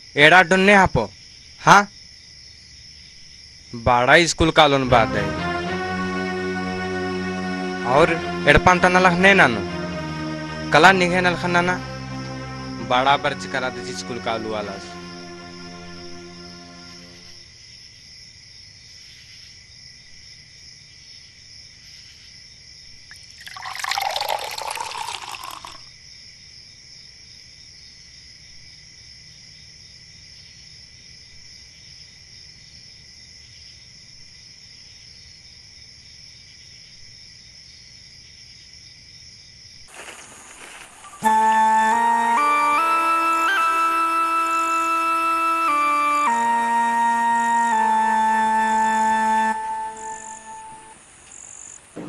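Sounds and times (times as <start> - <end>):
night insects chirring: 0.0 - 4.9, 5.6 - 42.3, 43.3 - 52.0
liquid being poured: 23.1 - 25.8.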